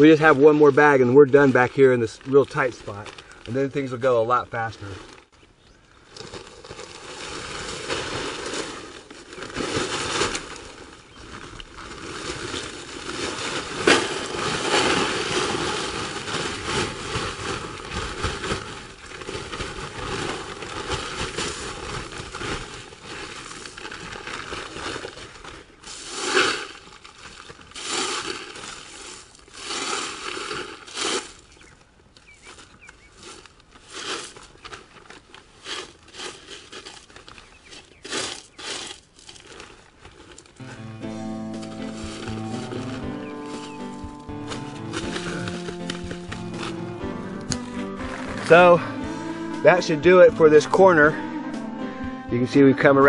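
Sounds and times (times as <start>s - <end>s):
plastic sheeting crinkling: 0.0s - 5.3s, 6.0s - 51.0s
gravel crunching and rattling: 0.0s - 48.8s
sharp crack: 13.1s - 18.7s.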